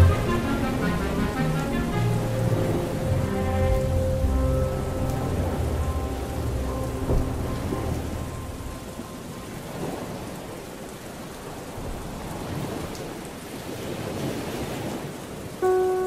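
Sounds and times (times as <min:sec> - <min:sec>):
music track: 0:00.0 - 0:10.3, 0:15.6 - 0:16.0
steady rain falling: 0:00.0 - 0:16.0.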